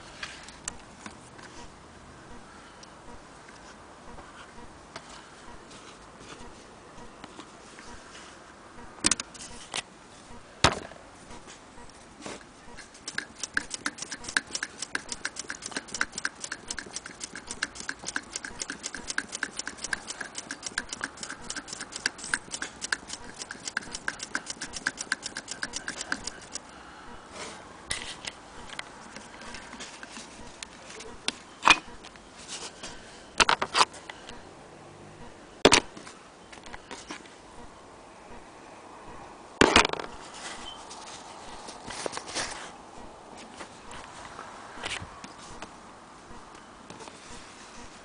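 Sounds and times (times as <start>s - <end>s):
sewing machine clicking: 13.0s - 26.6s.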